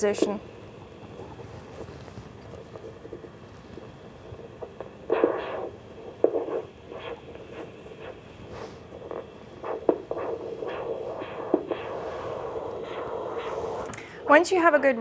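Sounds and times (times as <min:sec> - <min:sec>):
scratchy bursts: 0:01.0 - 0:14.4
whooshing pulse beats: 0:04.5 - 0:13.9.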